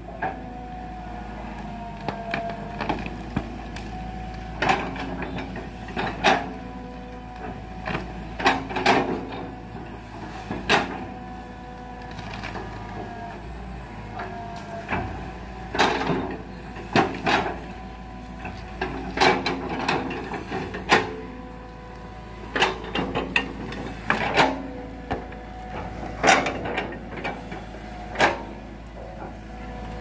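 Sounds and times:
excavator engine and hydraulics running: 0:00.0 - 0:30.0.

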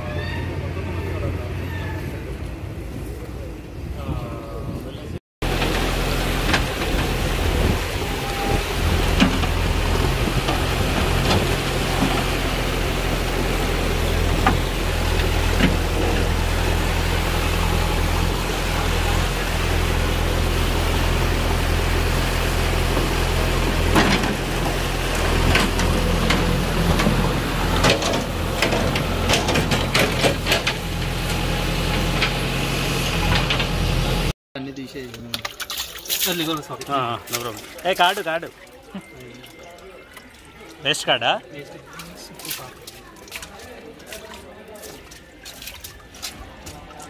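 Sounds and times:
diesel engine droning: 0:00.0 - 0:34.4.

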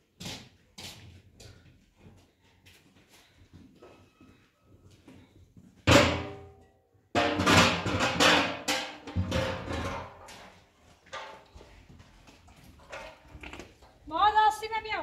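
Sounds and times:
metal pot and tray clanging: 0:07.2 - 0:10.2.

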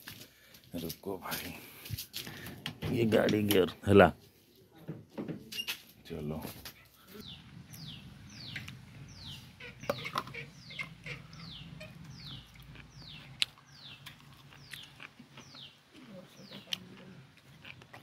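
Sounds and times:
chick peeping: 0:07.2 - 0:15.8.

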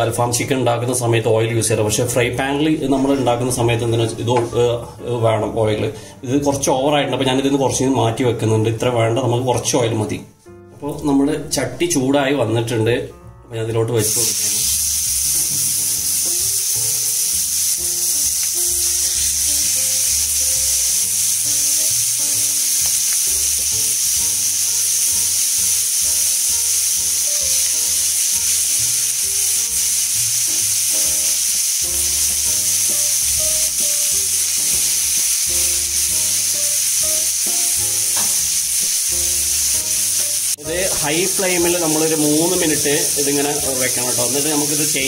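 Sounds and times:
background music: 0:00.0 - 0:45.0
chicken sizzling in hot oil: 0:14.0 - 0:45.0.

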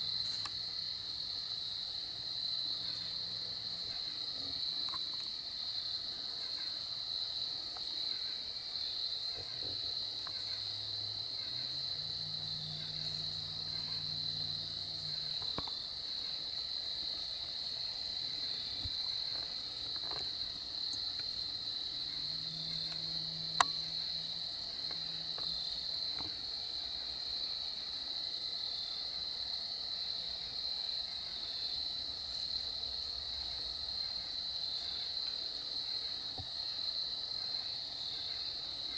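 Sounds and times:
faint low hum: 0:00.0 - 0:29.2
high-pitched insect chorus: 0:00.0 - 0:38.9.

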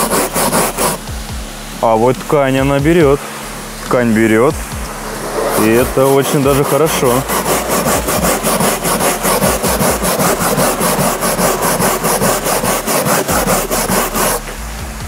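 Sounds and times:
bristle brush scrubbing fabric: 0:00.0 - 0:01.0, 0:04.6 - 0:14.5.

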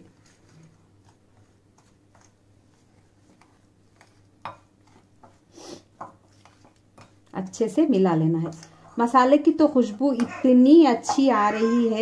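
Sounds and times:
spoon stirring in a bowl: 0:00.0 - 0:07.8, 0:08.4 - 0:09.2.

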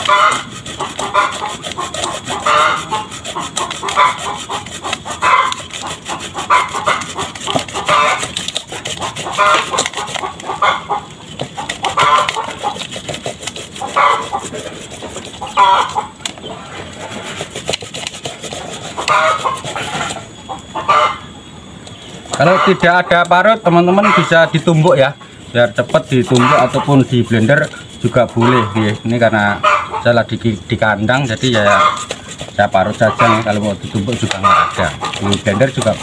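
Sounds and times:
grating on hand grater: 0:00.0 - 0:10.6, 0:11.4 - 0:16.2, 0:16.9 - 0:20.3, 0:25.9 - 0:29.4, 0:30.3 - 0:36.0
chickens clucking: 0:00.0 - 0:36.0.

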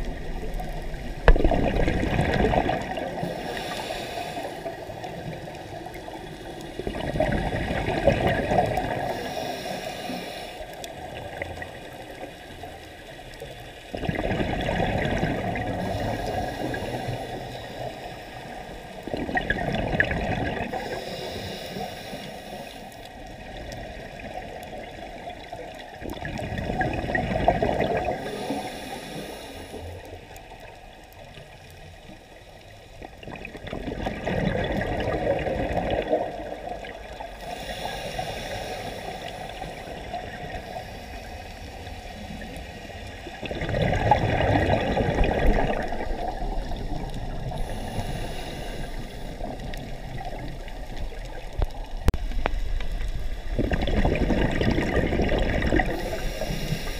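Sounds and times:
exhaled bubbles rushing: 0:00.0 - 0:03.6, 0:04.6 - 0:09.2, 0:13.9 - 0:17.4, 0:18.9 - 0:20.9, 0:23.2 - 0:28.4, 0:33.0 - 0:37.4, 0:42.2 - 0:56.9
regulator hiss: 0:03.2 - 0:04.7, 0:37.4 - 0:43.0, 0:47.5 - 0:51.0, 0:55.9 - 0:56.9.

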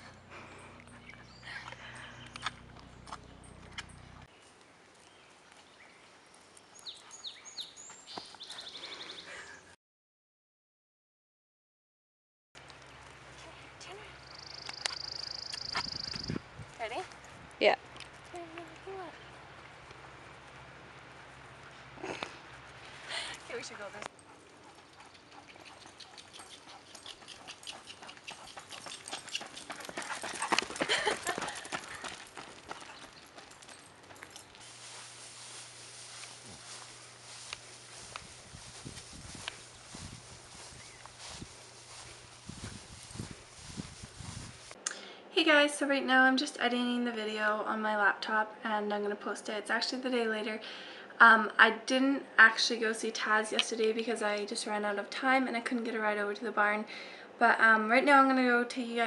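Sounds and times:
hooves trotting on pavement: 0:00.0 - 0:07.3, 0:12.6 - 0:44.8
faint outdoor ambience: 0:00.0 - 0:09.8, 0:12.6 - 0:59.0
running footsteps: 0:12.7 - 0:44.8
songbird whistling and trilling: 0:14.3 - 0:16.4.

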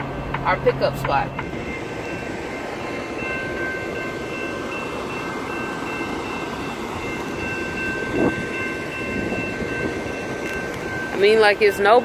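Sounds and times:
high whining tones: 0:00.0 - 0:12.0
train rumbling past: 0:00.0 - 0:12.0.

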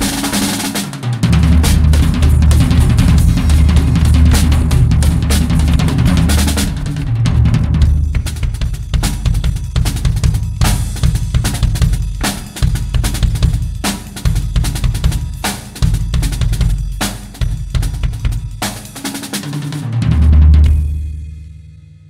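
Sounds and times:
cymbal crashes: 0:00.0 - 0:07.2, 0:20.6 - 0:22.0
loud low drum hit: 0:00.0 - 0:18.7, 0:19.8 - 0:22.0
drum kit solo: 0:00.0 - 0:22.0.

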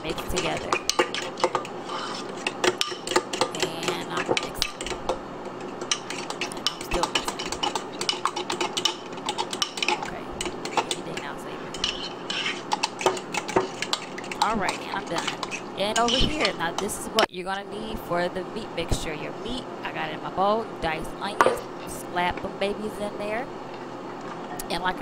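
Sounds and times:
fork scraping against bowl: 0:00.2 - 0:17.3.

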